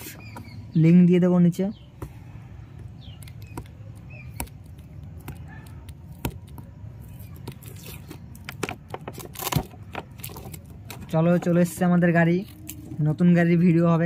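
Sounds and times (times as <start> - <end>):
toy packaging clicks and handling: 7.0 - 11.5.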